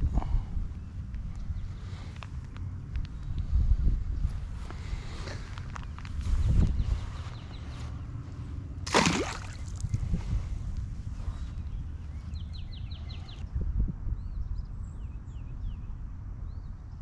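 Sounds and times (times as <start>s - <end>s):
wind rumble on microphone: 0.0s - 17.0s
lure splashing into water: 8.8s - 10.0s.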